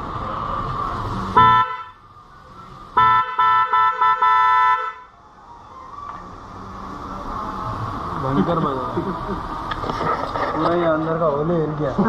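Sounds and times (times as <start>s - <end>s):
electric car horn blasts: 1.3s - 2.0s, 3.0s - 5.1s.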